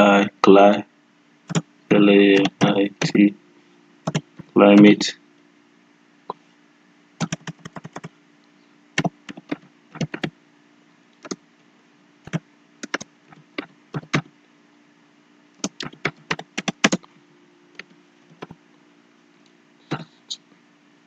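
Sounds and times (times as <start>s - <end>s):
faint steady hum: 0.0s - 21.0s
typing on a computer keyboard: 2.4s - 3.1s, 4.1s - 4.5s, 7.2s - 8.1s, 9.0s - 10.3s, 12.3s - 14.3s, 15.6s - 17.1s, 17.8s - 18.6s.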